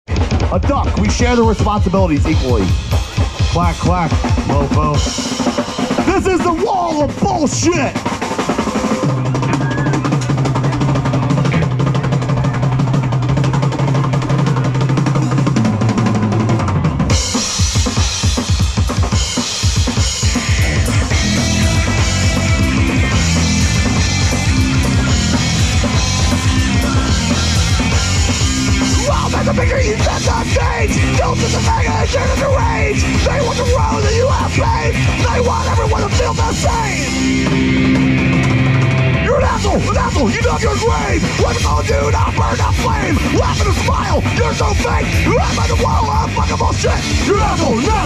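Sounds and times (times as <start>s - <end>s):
bass guitar: 0.0s - 48.0s
distorted electric guitars: 0.1s - 48.0s
drum kit: 0.1s - 48.0s.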